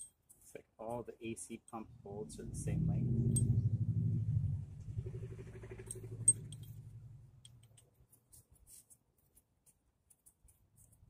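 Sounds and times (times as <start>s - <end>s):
small metal parts clinking: 0.0s - 0.6s, 3.2s - 3.6s, 5.8s - 11.0s
pulsing mechanical hum: 2.1s - 7.6s.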